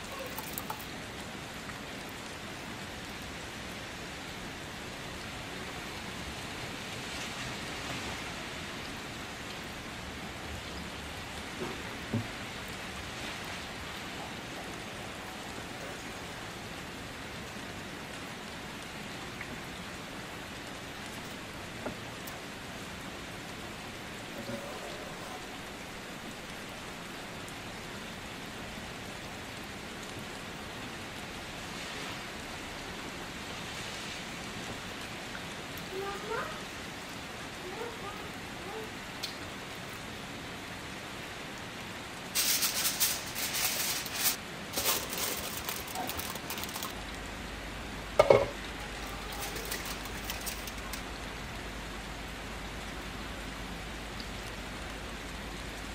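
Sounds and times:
rice pot sizzling: 42.2 - 47.1, 48.0 - 51.1.

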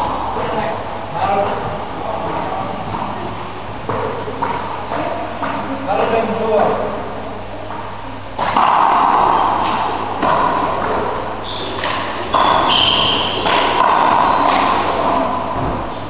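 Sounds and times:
shoes squeaking on wooden floor: 11.4 - 15.2.

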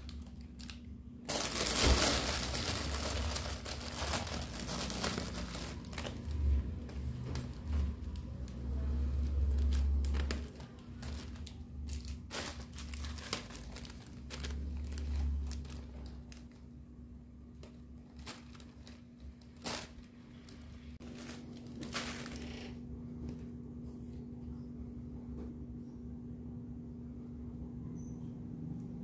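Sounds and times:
plastic bag crinkling: 0.0 - 16.8, 17.4 - 23.4
steady low hum: 0.0 - 29.0
paper sheets rustling: 1.3 - 8.3, 9.2 - 16.5, 18.0 - 22.8.

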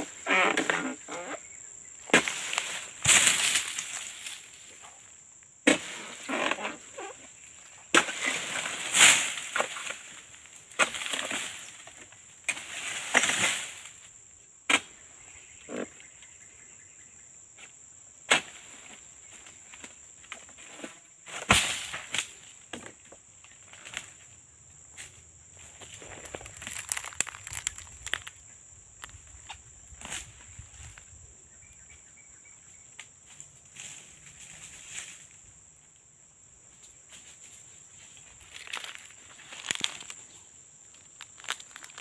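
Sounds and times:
high insect drone: 0.0 - 42.0
sickle cutting palm fronds: 0.1 - 1.4, 2.0 - 4.5, 5.6 - 7.2, 7.9 - 14.0, 18.3 - 19.0, 19.8 - 22.4
fronds falling through leaves: 2.1 - 4.6, 26.0 - 28.4, 38.3 - 40.2, 40.9 - 42.0.

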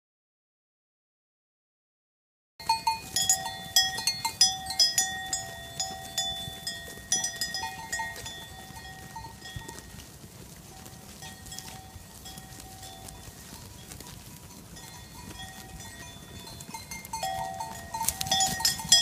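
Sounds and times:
sheep bells clanking: 2.6 - 19.0.

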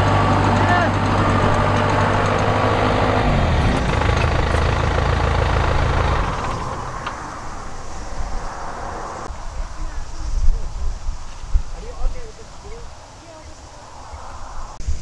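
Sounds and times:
combine harvester engine running: 0.0 - 8.1.

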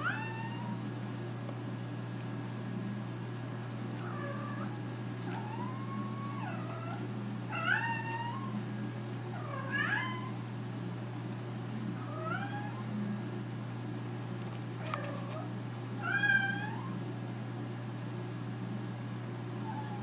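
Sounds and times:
cat meowing: 0.0 - 0.8, 4.0 - 8.6, 9.4 - 10.4, 12.1 - 12.8, 16.0 - 17.0, 19.6 - 20.0
steady low hum: 0.0 - 20.0.

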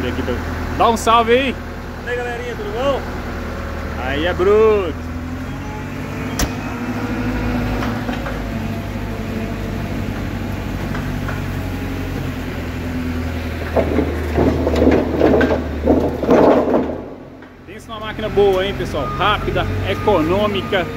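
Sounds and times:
diesel engine running: 0.0 - 20.9
wooden logs knocking: 10.0 - 17.7.

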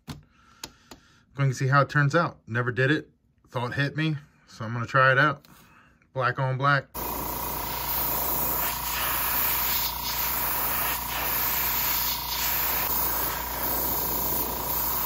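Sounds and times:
airbrush spraying hiss: 7.0 - 15.0.

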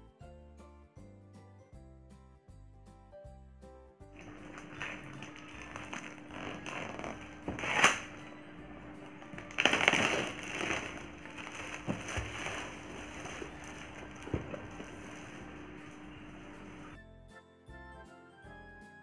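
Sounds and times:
plastic wrap crinkling and tearing: 4.2 - 17.0
box knocking on table: 14.2 - 15.0.

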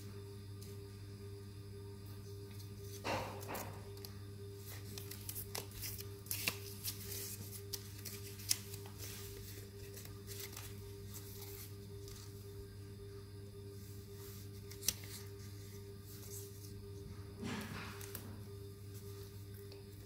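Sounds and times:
paper rustling: 2.6 - 12.5, 13.9 - 16.8.

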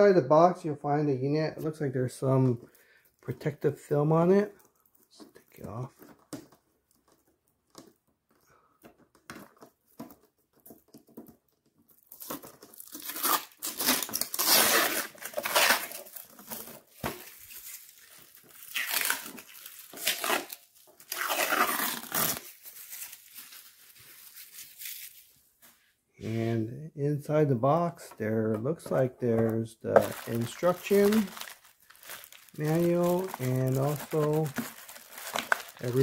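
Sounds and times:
plastic film crackling as peeled: 11.6 - 25.4, 30.0 - 36.0.

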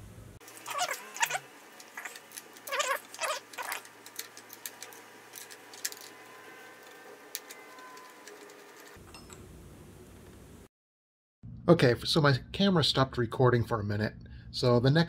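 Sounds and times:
short squeaky rasps: 0.5 - 3.9
wrench clicking and scraping metal: 1.2 - 9.3.

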